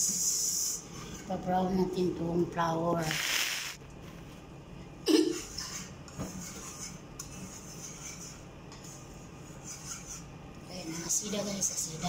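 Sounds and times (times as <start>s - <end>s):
whisk scraping pan: 5.4s - 12.0s.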